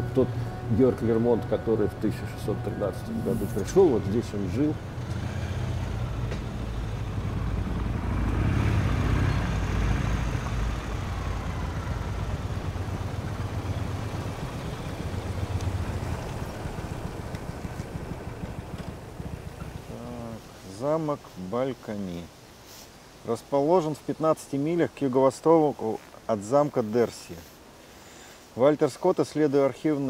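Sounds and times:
motorcycles riding past: 0.0s - 20.6s.

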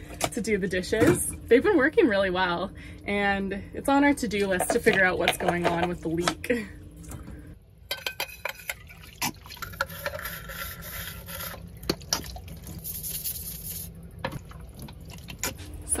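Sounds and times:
brush scrubbing metal cup: 9.5s - 13.9s.

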